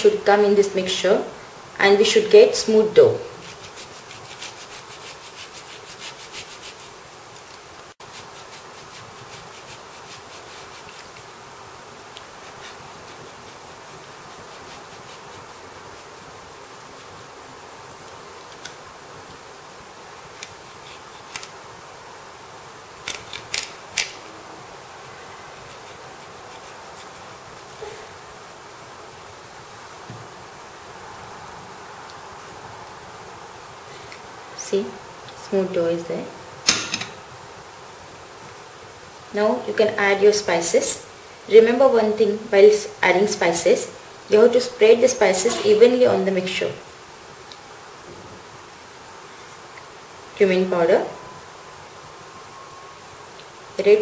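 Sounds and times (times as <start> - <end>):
faint steady hum: 0.0 - 54.0
potato grating on grater: 3.4 - 7.0, 8.0 - 11.3, 12.2 - 16.2, 25.5 - 27.4.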